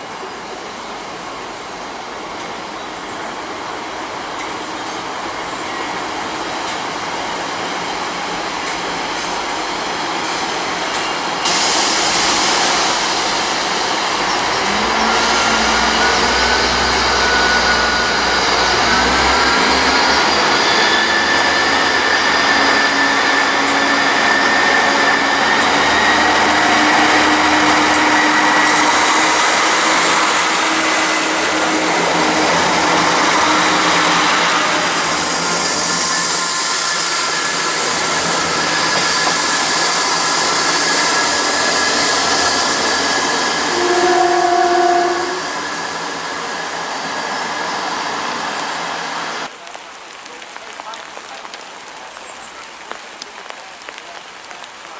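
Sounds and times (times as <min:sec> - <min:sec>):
train engines whining: 0:00.0 - 0:49.5
train engine hum: 0:00.0 - 0:54.9
train horn: 0:14.6 - 0:36.2, 0:43.2 - 0:45.6.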